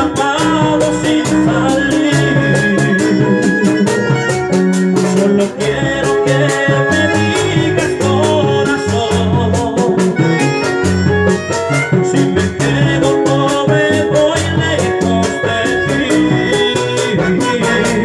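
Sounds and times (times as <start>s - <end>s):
bass notes: 0.0s - 18.0s
button accordion melody: 0.0s - 18.0s
rapid percussion beat: 0.0s - 18.0s.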